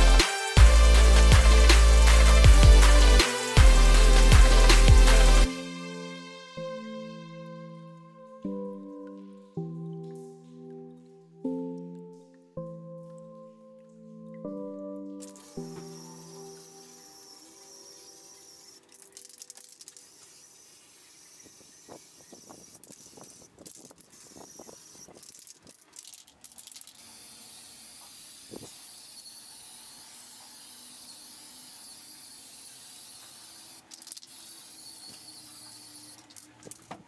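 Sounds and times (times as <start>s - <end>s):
spray paint can hissing: 0.0s - 5.5s, 15.2s - 36.9s.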